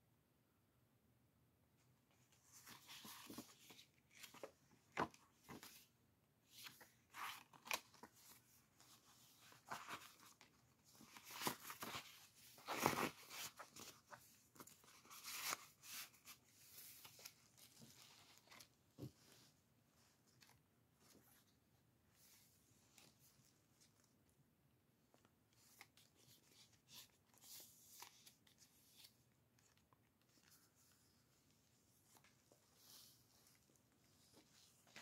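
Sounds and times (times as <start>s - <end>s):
paper rustling and crinkling: 2.3s - 19.6s.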